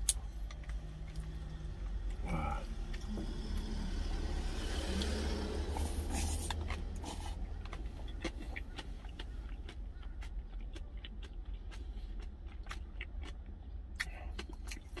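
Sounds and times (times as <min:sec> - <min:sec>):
mouth chewing sounds: 0:04.8 - 0:15.0.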